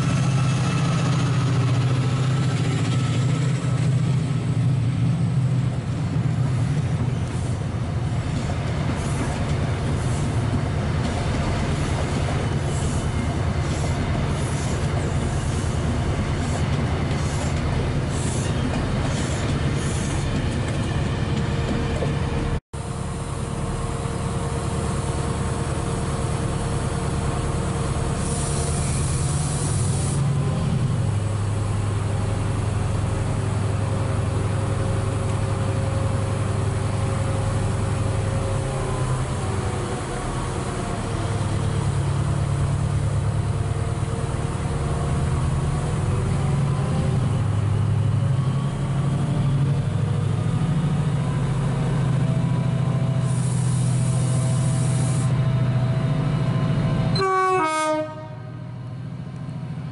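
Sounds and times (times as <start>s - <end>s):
diesel engine drone: 22.3s - 57.2s.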